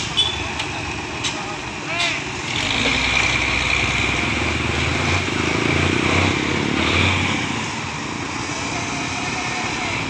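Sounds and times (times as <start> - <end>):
vehicle engines rumbling: 0.0 - 10.0.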